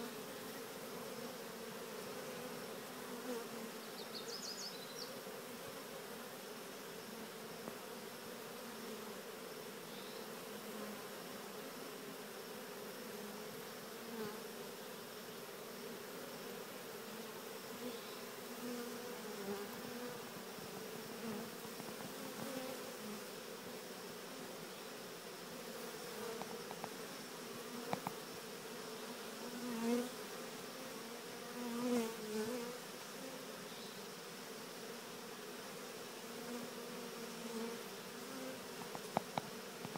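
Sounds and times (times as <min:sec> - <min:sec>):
bee swarm humming: 0:00.0 - 0:39.9.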